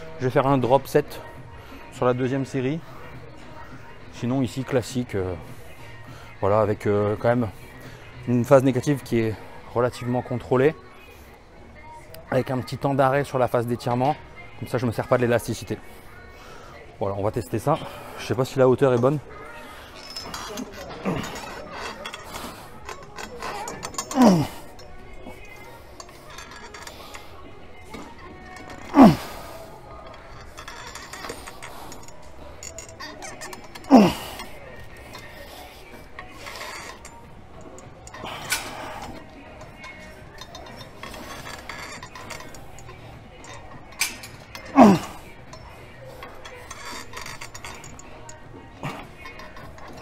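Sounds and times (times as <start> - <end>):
background music: 0.0 - 50.0
weight stack clinking: 19.8 - 50.0
person grunting: 44.8 - 45.2.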